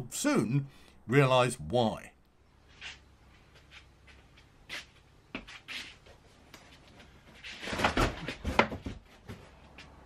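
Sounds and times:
footsteps and shuffling: 0:02.6 - 0:10.0
knocks and scuffs: 0:02.7 - 0:10.0.

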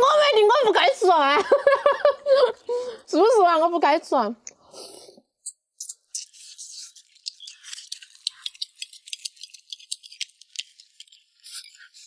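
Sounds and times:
rapid crackling and rattling: 0:05.8 - 0:12.0.

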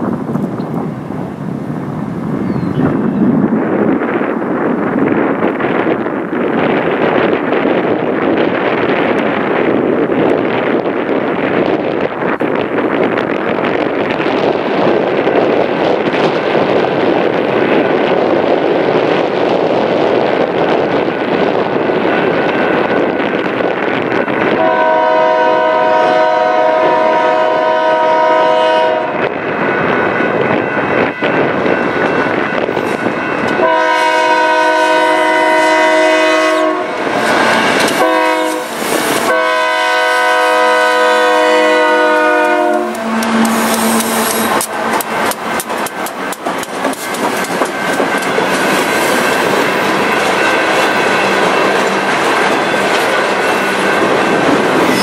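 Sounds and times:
diesel locomotives rumbling past: 0:00.0 - 0:55.0.

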